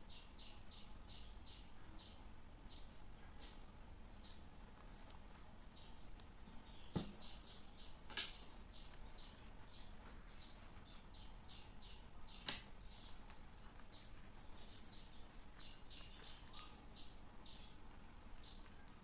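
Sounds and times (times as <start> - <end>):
faint high chirps: 0.0 - 19.0
sharp click: 12.4 - 12.7.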